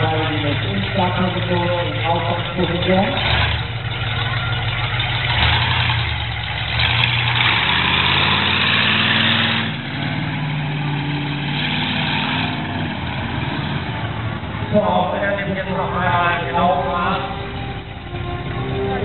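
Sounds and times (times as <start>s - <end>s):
heavy exhaust roar: 0.0s - 19.0s
monster truck engine revving: 0.0s - 19.0s.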